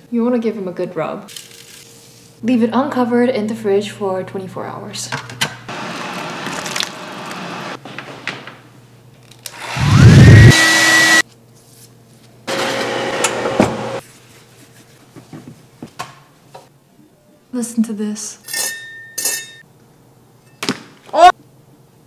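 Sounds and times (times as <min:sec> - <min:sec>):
hair dryer motor whine: 0:09.5 - 0:11.2, 0:12.5 - 0:14.0
rushing air noise: 0:09.7 - 0:10.6.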